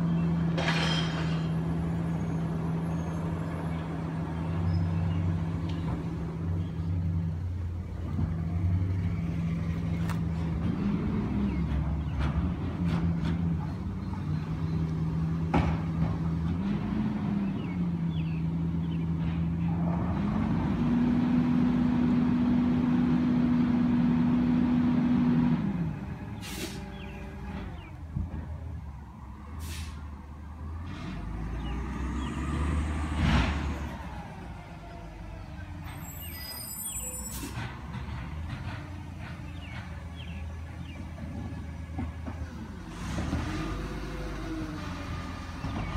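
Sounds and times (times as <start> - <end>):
truck engine rumbling: 0.0 - 45.9
air-brake hiss: 26.4 - 26.8, 29.6 - 30.0.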